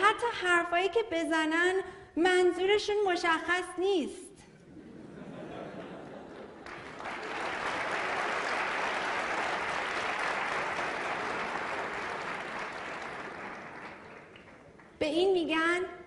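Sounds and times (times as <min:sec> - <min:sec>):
audience applauding: 0:05.7 - 0:15.0.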